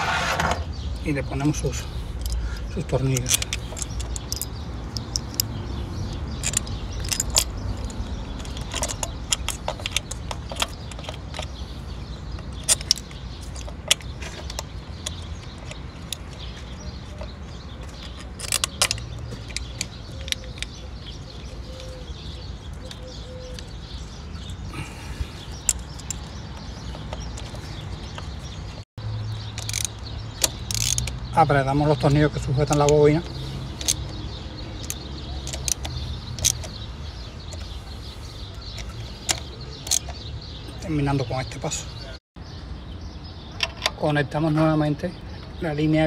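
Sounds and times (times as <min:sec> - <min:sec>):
light metallic clicks and clinks: 0:02.1 - 0:05.6, 0:06.2 - 0:11.6, 0:12.3 - 0:24.6, 0:25.6 - 0:37.7.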